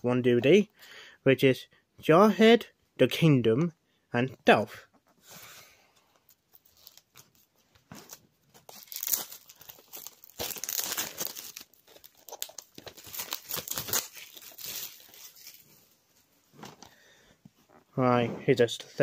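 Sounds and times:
plastic wrap crackling and tearing: 0:06.3 - 0:15.8.

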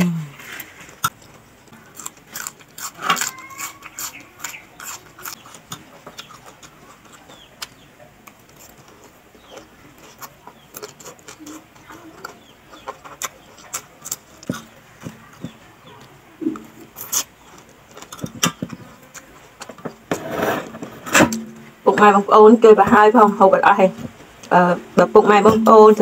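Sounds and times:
crunchy chewing: 0:00.4 - 0:21.0.

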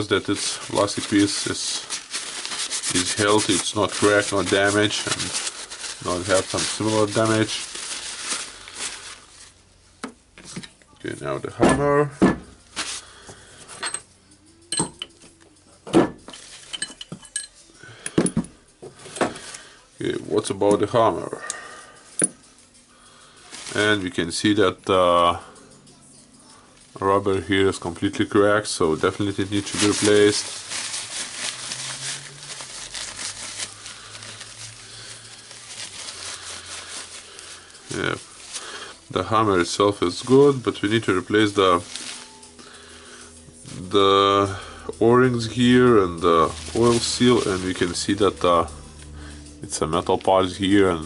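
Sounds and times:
paper towel crumpling and rustling: 0:00.0 - 0:09.6, 0:12.7 - 0:13.3, 0:16.3 - 0:16.8, 0:23.4 - 0:24.5, 0:27.2 - 0:42.9, 0:43.6 - 0:51.0
metal parts clinking: 0:16.2 - 0:18.4.

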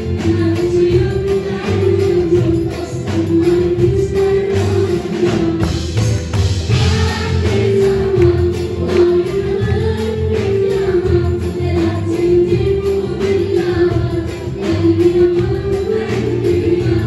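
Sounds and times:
young voices singing: 0:00.0 - 0:05.6, 0:06.7 - 0:17.0
orchestra: 0:00.0 - 0:17.0
percussion: 0:00.0 - 0:17.0
pulsing bass line: 0:00.0 - 0:17.0.

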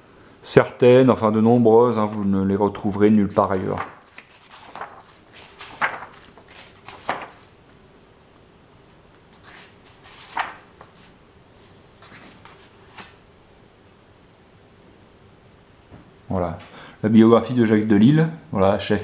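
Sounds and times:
book pages turning: 0:01.3 - 0:07.6, 0:09.3 - 0:13.2.

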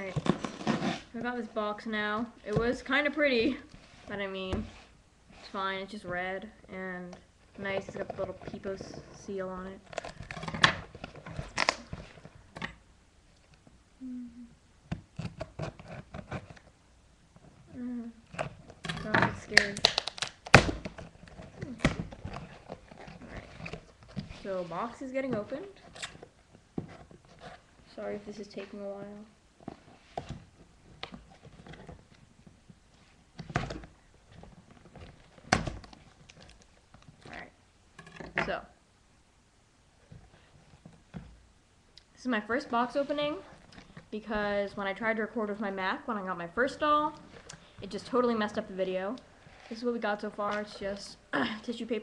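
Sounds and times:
packing tape tearing: 0:18.3 - 0:23.9.

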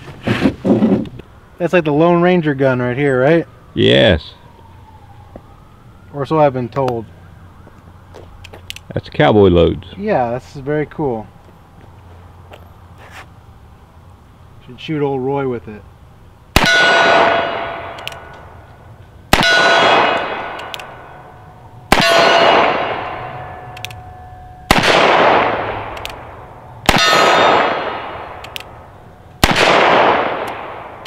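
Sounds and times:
revolver shots echoing: 0:19.3 - 0:23.8, 0:24.7 - 0:28.8, 0:29.4 - 0:31.0.

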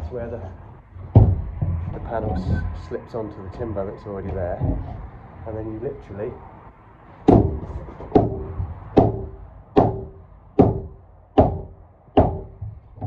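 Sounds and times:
heavy knocks on roof panel: 0:01.0 - 0:02.9, 0:04.2 - 0:05.2, 0:07.3 - 0:13.0.

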